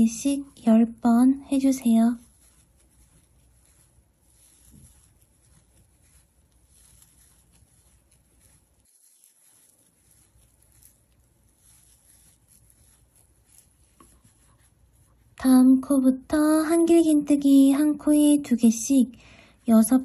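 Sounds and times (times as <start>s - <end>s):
crochet hook pulling yarn: 0.0s - 15.5s.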